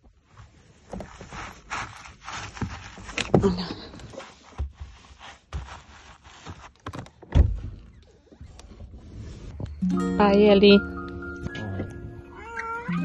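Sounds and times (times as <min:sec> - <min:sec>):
clothes rustling: 0:00.0 - 0:07.3
scrapes: 0:00.2 - 0:07.2.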